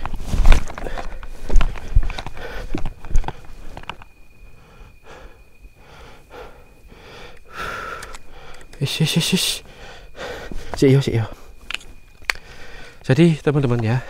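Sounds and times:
person breathing hard: 0:00.8 - 0:03.6, 0:04.5 - 0:08.8, 0:09.6 - 0:11.6, 0:12.3 - 0:13.0.

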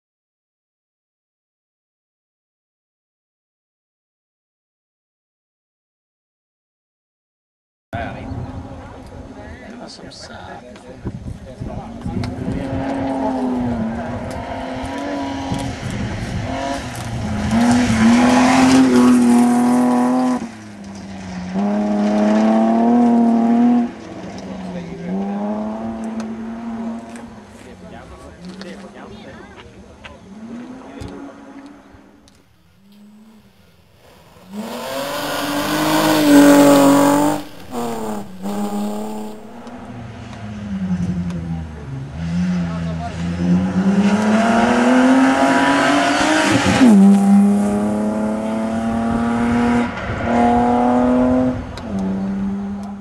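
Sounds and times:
rally car engine revving: 0:11.9 - 0:27.6, 0:30.2 - 0:53.0.

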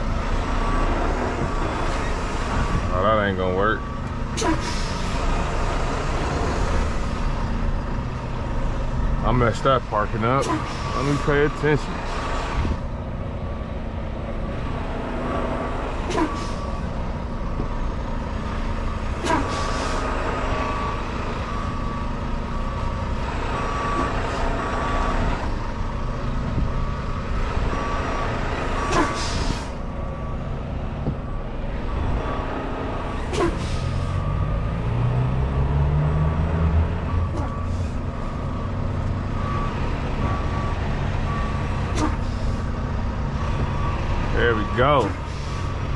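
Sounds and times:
diesel truck engine running: 0:00.0 - 0:45.9
air brake hisses: 0:04.4 - 0:05.2, 0:19.2 - 0:20.1, 0:28.8 - 0:29.8, 0:33.3 - 0:34.2
reversing beeper: 0:09.3 - 0:12.0, 0:18.5 - 0:34.5, 0:35.4 - 0:45.8.

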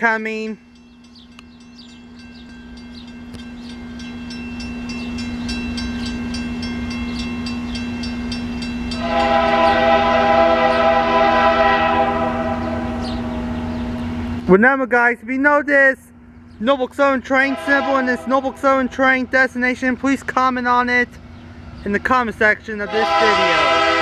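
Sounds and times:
crossing bell ringing: 0:00.0 - 0:14.3
freight locomotive approaching: 0:00.0 - 0:24.0
train air horn blast: 0:09.0 - 0:13.6, 0:17.4 - 0:19.1, 0:22.9 - 0:24.0.

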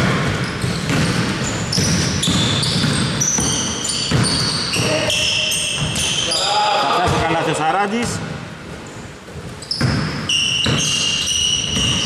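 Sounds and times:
basketball bouncing on court: 0:00.0 - 0:06.3, 0:09.3 - 0:12.0
sneakers squeaking on floor: 0:00.0 - 0:07.4, 0:08.0 - 0:12.0.

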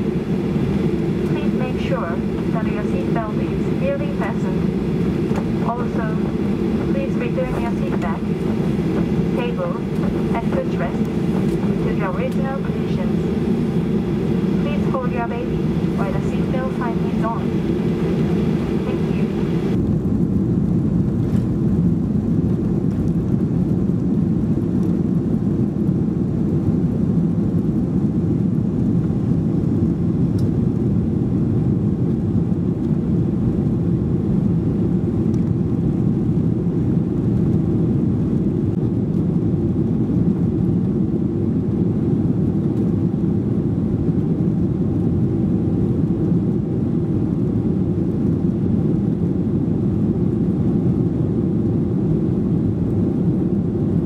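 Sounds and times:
airflow noise: 0:00.0 - 0:19.8
jet engines rumbling in cabin: 0:00.0 - 0:54.0.

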